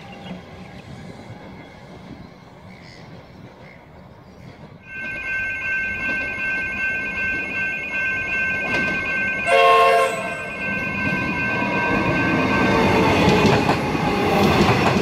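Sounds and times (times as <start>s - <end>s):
train rumble: 0.0s - 15.0s
level crossing bells ringing: 4.8s - 13.8s
train horn chord: 9.4s - 10.7s.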